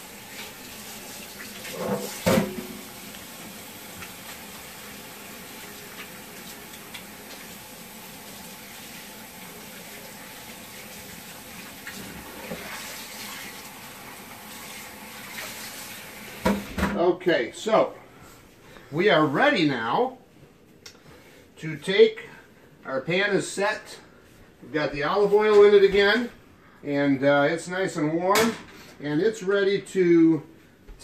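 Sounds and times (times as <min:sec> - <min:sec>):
tap water running: 0:00.0 - 0:16.8.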